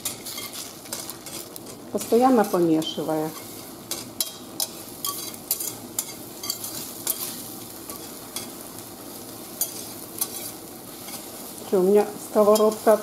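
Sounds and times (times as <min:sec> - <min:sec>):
eggs sizzling in oil: 0:00.0 - 0:13.0
whisk scraping against pan: 0:09.6 - 0:11.3.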